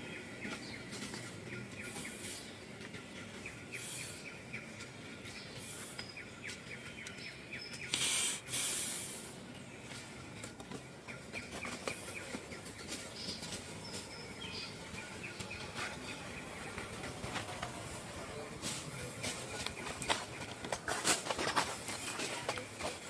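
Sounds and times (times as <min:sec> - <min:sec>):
small birds chirping: 0:00.0 - 0:23.0
loud burst of hissing noise: 0:08.0 - 0:09.3.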